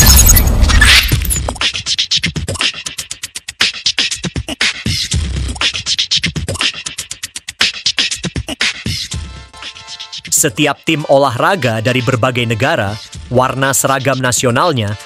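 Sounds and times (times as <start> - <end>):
beatboxing percussive beat: 1.4 - 10.4.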